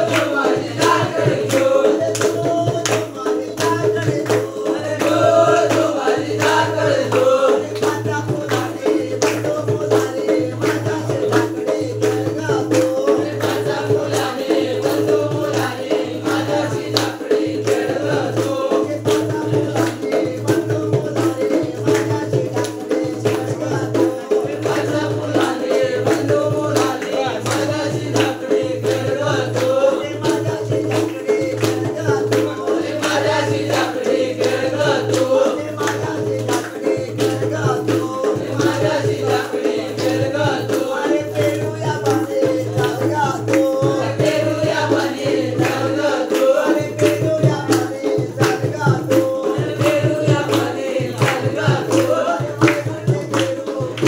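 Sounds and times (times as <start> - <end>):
group singing: 0.0 - 54.0
hand drum beat: 0.0 - 54.0
jingling hand percussion: 0.0 - 54.0.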